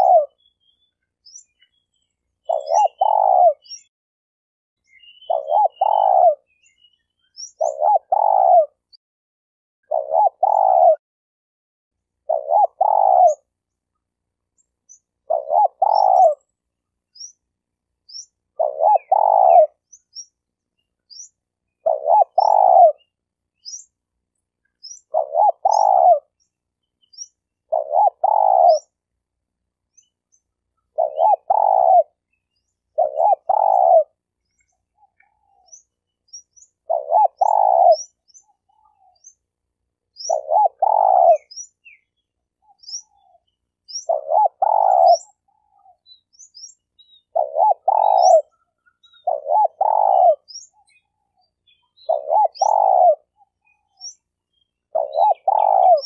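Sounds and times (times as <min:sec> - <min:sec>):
dove cooing: 0:00.0 - 0:00.5, 0:02.4 - 0:03.9, 0:04.9 - 0:08.9, 0:09.8 - 0:11.0, 0:12.2 - 0:13.5, 0:15.2 - 0:16.5, 0:18.2 - 0:20.0, 0:21.1 - 0:23.9, 0:24.8 - 0:26.5, 0:27.1 - 0:29.0, 0:30.8 - 0:39.3, 0:40.1 - 0:56.0
small bird chirping: 0:00.0 - 0:03.9, 0:04.8 - 0:09.0, 0:09.8 - 0:11.0, 0:12.2 - 0:13.6, 0:14.5 - 0:56.0.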